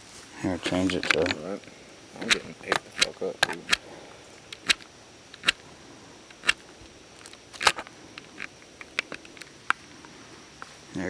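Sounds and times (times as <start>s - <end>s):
flashlight switch clicking: 4.5s - 5.6s.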